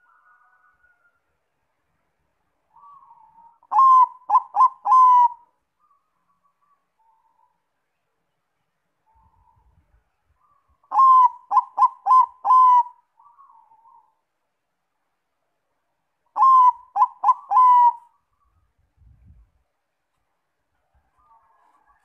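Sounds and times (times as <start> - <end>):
dove cooing: 2.7 - 6.0, 10.4 - 14.2, 16.3 - 18.3.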